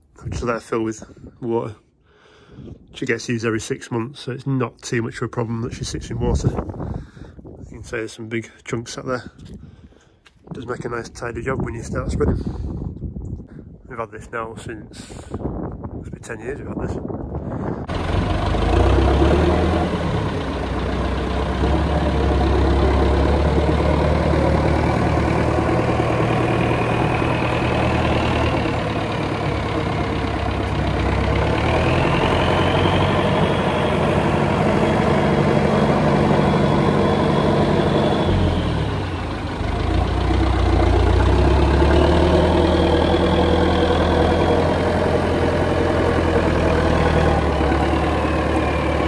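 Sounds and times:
tractor diesel engine running: 0:17.8 - 0:49.0.

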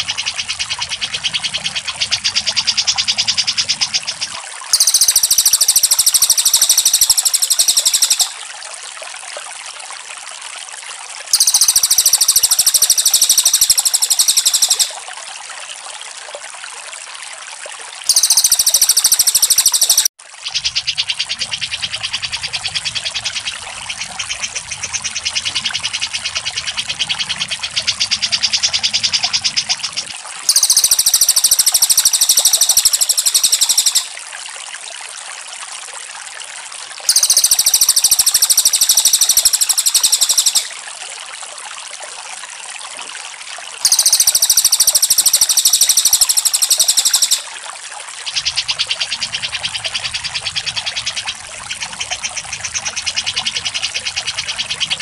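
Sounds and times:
high bird chattering: 0:00.0 - 0:08.3, 0:11.3 - 0:15.0, 0:18.1 - 0:23.4, 0:30.5 - 0:34.1, 0:37.1 - 0:40.7, 0:43.8 - 0:47.5
bird trilling: 0:00.0 - 0:08.4, 0:11.3 - 0:15.0, 0:18.1 - 0:21.4, 0:30.5 - 0:34.1, 0:37.1 - 0:40.7, 0:43.8 - 0:47.5.

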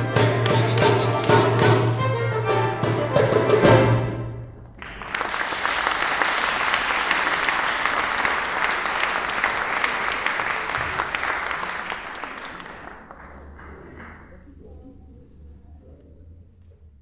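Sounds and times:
audience applauding: 0:04.7 - 0:14.6.

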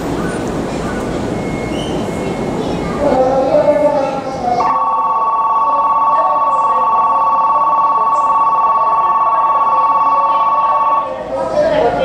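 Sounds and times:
two-tone electronic departure bell: 0:04.7 - 0:11.1.

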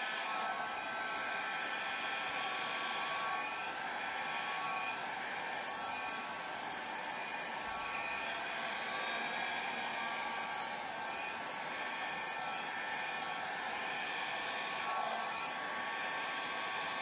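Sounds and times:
hair dryer running: 0:00.0 - 0:17.0.

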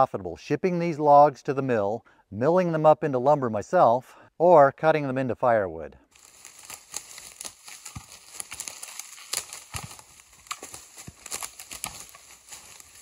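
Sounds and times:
wood breaking through twigs: 0:06.1 - 0:13.0
firewood tumbling down slope: 0:06.2 - 0:13.0.

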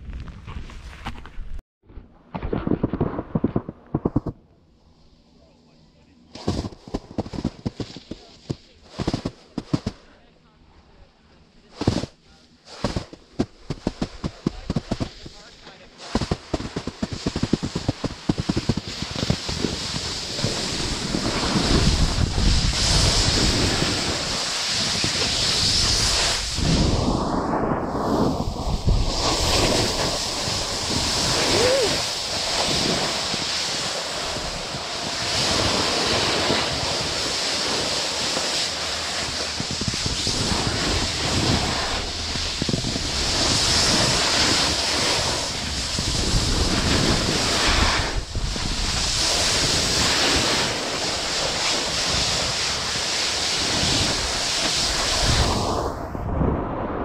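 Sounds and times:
snowboard edges scraping snow: 0:06.4 - 0:10.1, 0:11.6 - 0:56.0
wind rushing over microphone: 0:16.1 - 0:57.0.

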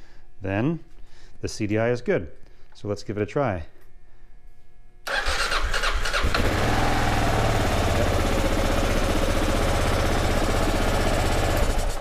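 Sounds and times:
motorcycle engine starting and running: 0:05.1 - 0:12.0.

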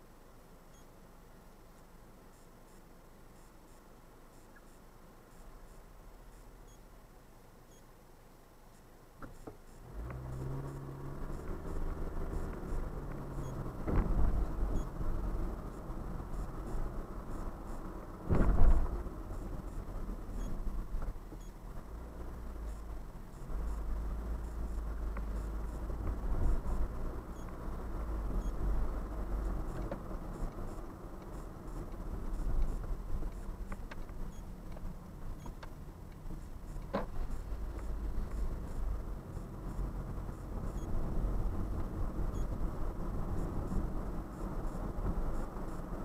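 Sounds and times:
car engine idling: 0:09.6 - 0:46.0.

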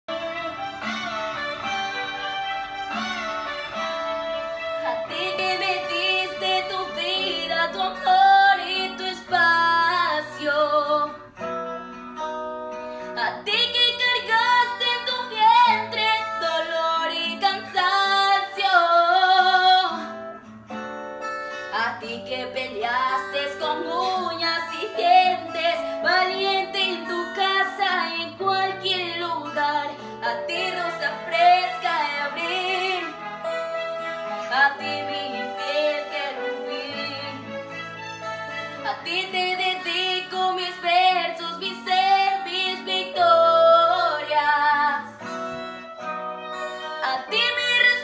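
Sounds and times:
guitar accompaniment: 0:00.1 - 0:48.0
woman singing a slow ballad: 0:04.8 - 0:11.3, 0:13.2 - 0:20.3, 0:21.6 - 0:33.2, 0:34.3 - 0:37.5, 0:38.8 - 0:45.3, 0:47.0 - 0:48.0.

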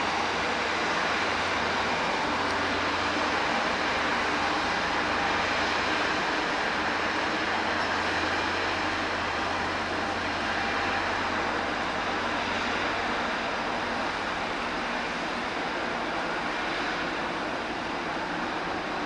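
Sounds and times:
water rushing along hull: 0:00.0 - 0:19.0.

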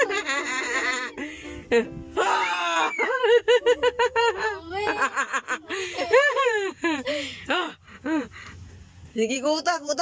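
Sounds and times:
girl laughing: 0:00.0 - 0:01.9, 0:02.6 - 0:08.2
girl squealing: 0:02.2 - 0:03.3.

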